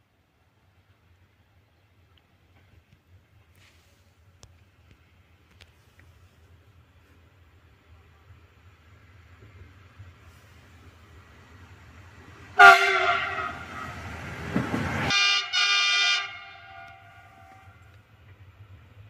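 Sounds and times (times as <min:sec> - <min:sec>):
rumble of passing locomotive: 0:00.2 - 0:19.0
locomotive horn blasts: 0:12.6 - 0:14.0, 0:15.1 - 0:17.8.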